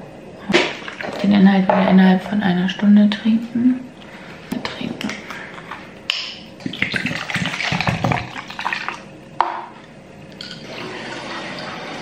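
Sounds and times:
liquid glugging into plastic cup: 6.6s - 9.1s.

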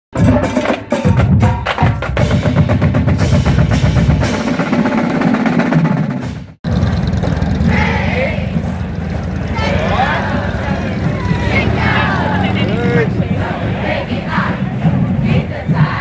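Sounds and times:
percussive drum music: 0.1s - 6.7s
outdoor noise: 0.1s - 16.0s.

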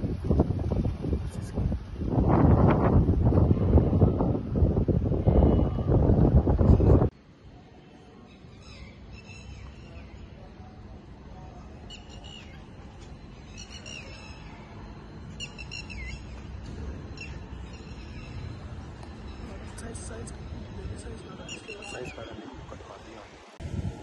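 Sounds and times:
steady low rumble: 0.0s - 7.2s
bird calling: 11.9s - 12.8s, 13.4s - 23.3s.

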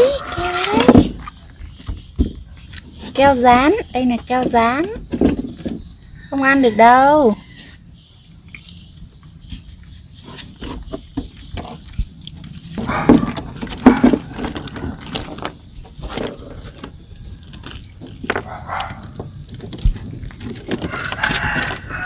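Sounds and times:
baby monkeys calling: 0.0s - 2.3s.

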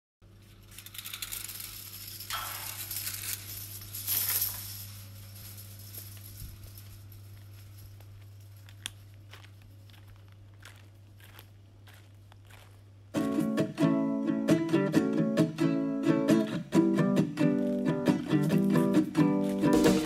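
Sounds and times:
steady low hum: 0.2s - 20.0s
bead curtain clattering: 0.4s - 9.4s, 17.6s - 20.0s
footsteps on gravel: 5.7s - 13.8s, 17.4s - 20.0s.

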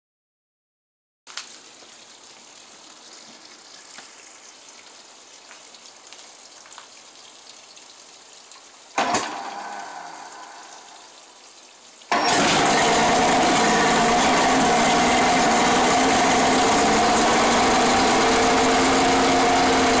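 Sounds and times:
outboard motor starting and idling: 9.0s - 10.5s, 12.1s - 20.0s.

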